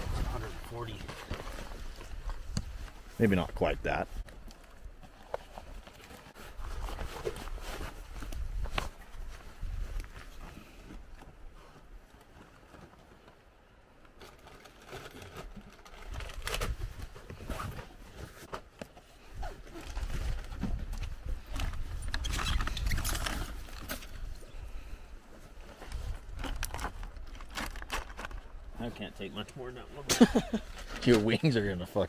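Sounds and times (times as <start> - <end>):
rustling fabric and plastic: 0.0 - 3.4, 4.1 - 29.3.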